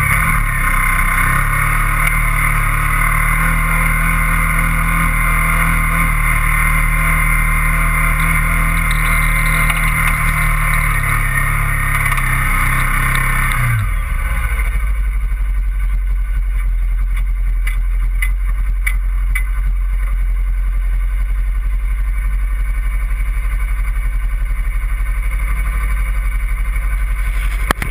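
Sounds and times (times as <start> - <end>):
vehicle engine running: 0.0 - 27.9
sharp clicks: 8.8 - 12.4.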